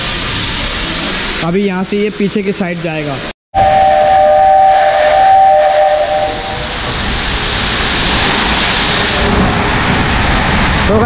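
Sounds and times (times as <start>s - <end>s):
steam hissing: 0.0s - 11.0s
two-note steam whistle: 3.6s - 6.8s.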